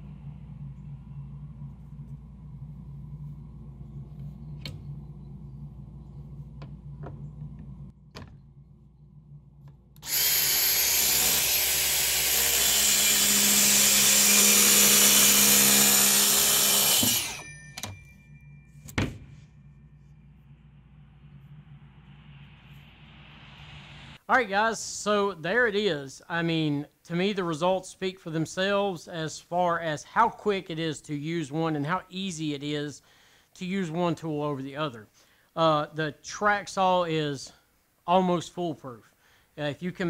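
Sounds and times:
track saw cutting panel: 10.0 - 17.9
knock: 19.0 - 19.4.

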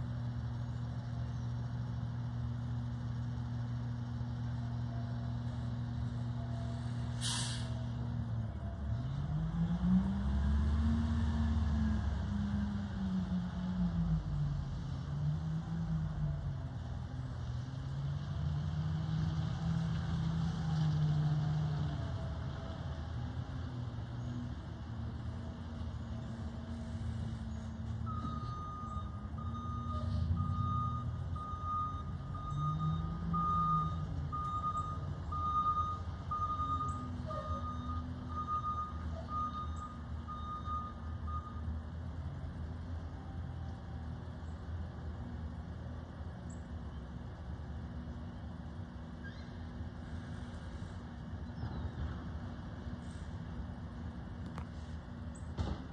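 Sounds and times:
garbage truck diesel engine: 0.0 - 55.9
truck reverse alarm beeps: 27.9 - 41.8.

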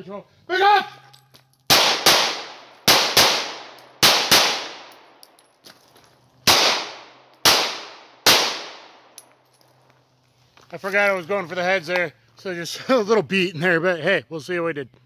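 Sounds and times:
pistol shots echoing: 1.7 - 5.1, 6.5 - 9.1.

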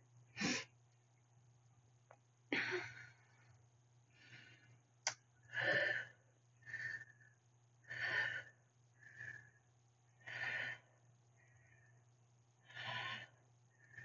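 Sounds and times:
woman breathing hard: 4.1 - 4.8, 5.5 - 14.0.

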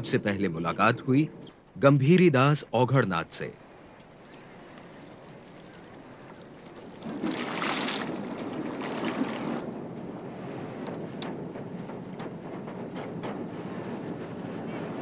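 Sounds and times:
water sloshing: 3.6 - 13.5
water splashing: 3.9 - 12.2.

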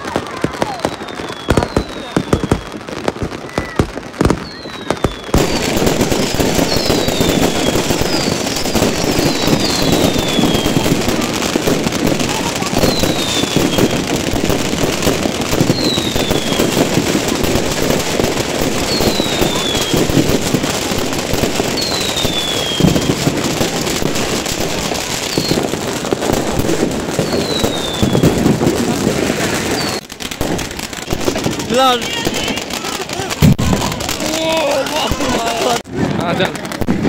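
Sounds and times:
falling firework whistle: 0.0 - 28.7, 29.3 - 30.1
firecrackers crackling: 0.0 - 37.0.

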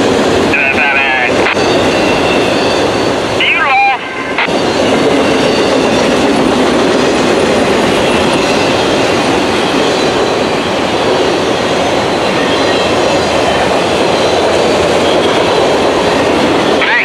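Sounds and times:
freight train wheels on rails: 0.0 - 17.0.

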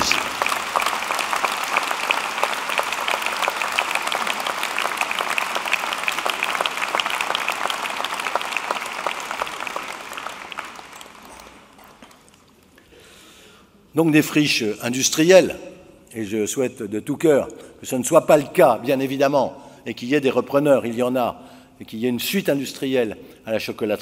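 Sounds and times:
audience applause: 0.0 - 12.6.

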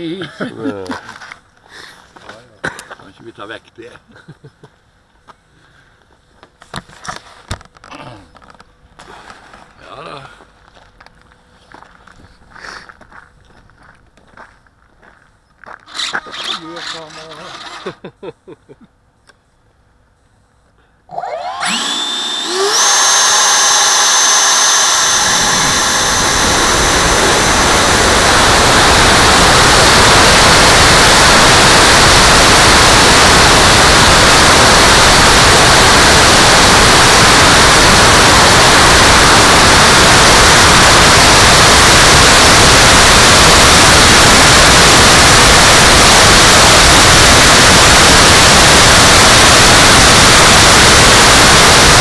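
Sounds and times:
electric ducted fan whine: 20.9 - 52.0
rush of fan and air: 21.6 - 52.0.

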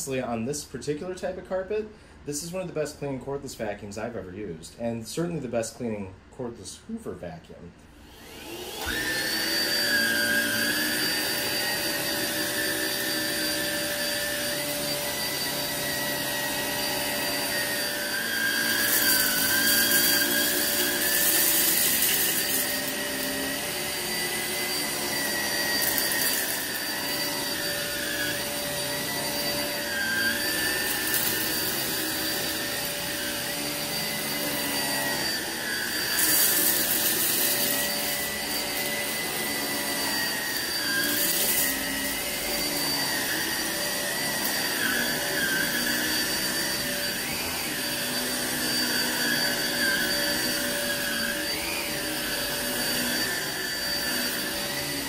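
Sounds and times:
vacuum cleaner motor whining: 8.0 - 55.0.

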